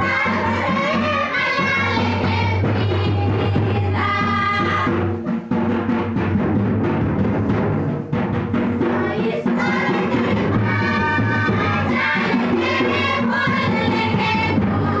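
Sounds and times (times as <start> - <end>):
group singing: 0.0 - 4.9, 8.7 - 15.0
steady drumming: 0.0 - 15.0.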